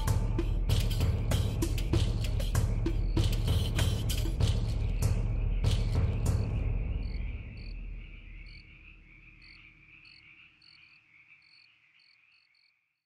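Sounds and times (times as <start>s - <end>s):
insect trill: 0.0s - 13.0s.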